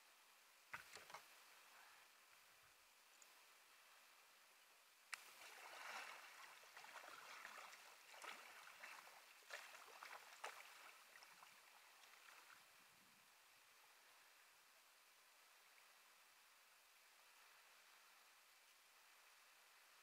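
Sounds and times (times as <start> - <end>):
paddle splashing water: 5.1 - 12.6.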